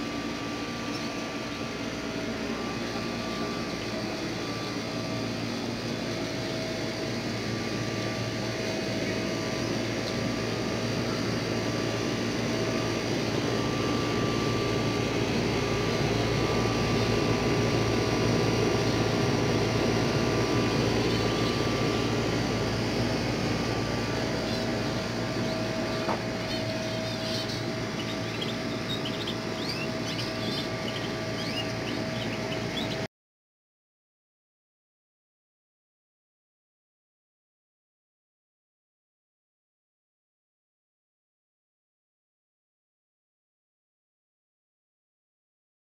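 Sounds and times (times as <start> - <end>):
mechanical drone: 0.0 - 33.0
small birds chirping: 0.6 - 6.5, 7.7 - 11.8, 20.4 - 22.3, 24.1 - 33.1.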